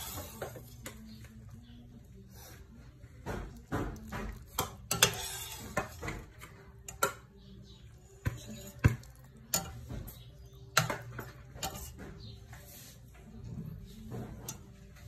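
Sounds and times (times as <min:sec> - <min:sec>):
metal utensil clinking on pot: 0:03.9 - 0:07.3, 0:08.2 - 0:12.0.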